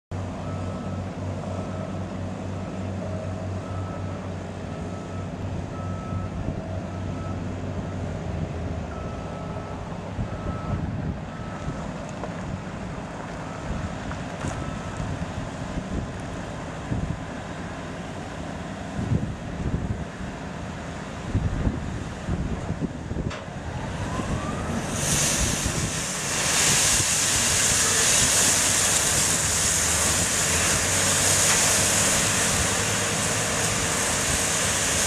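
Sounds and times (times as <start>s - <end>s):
wind on microphone: 21.3s - 30.9s.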